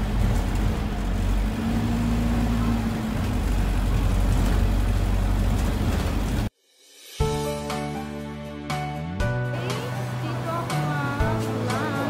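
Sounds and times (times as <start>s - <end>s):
engine rumble: 0.0s - 6.5s, 8.8s - 12.0s
road noise: 0.0s - 6.5s, 8.7s - 12.0s.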